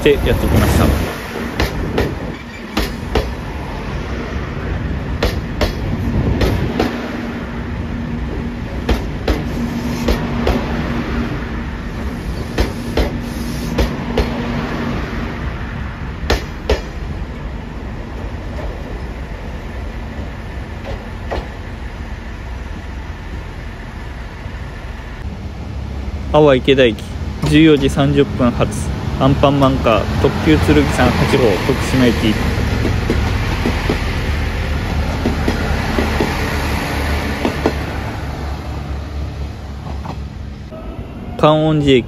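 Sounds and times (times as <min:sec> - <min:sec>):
train rumble: 0:00.0 - 0:42.0
train wheels clacking over rail joints: 0:01.5 - 0:03.4, 0:05.2 - 0:07.1, 0:08.8 - 0:10.7, 0:12.4 - 0:14.4, 0:32.7 - 0:34.2, 0:35.1 - 0:36.4.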